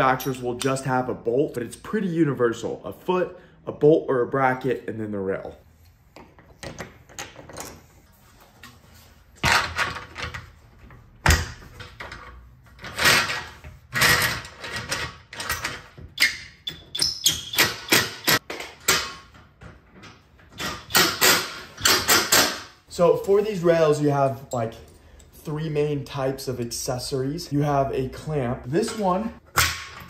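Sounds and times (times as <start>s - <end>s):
metal hardware clicking and clattering: 6.2s - 8.0s, 11.2s - 22.8s, 24.4s - 25.4s.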